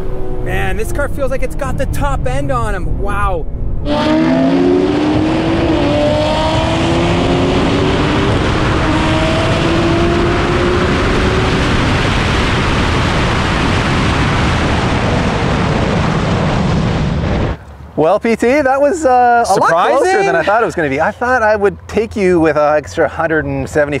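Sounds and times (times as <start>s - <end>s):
car engine revving up: 0.0s - 16.7s
wind rushing: 0.0s - 17.6s
road noise: 0.0s - 24.0s.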